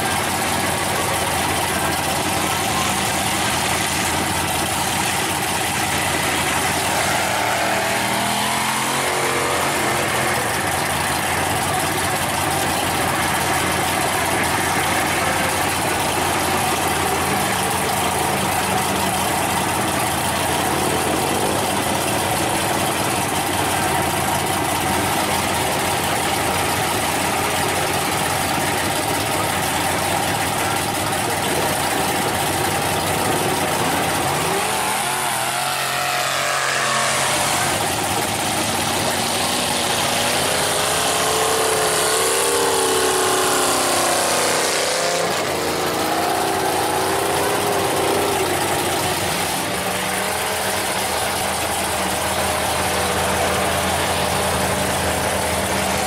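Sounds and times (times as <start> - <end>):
diesel engines idling: 0.0 - 56.0
engine revving: 0.0 - 56.0.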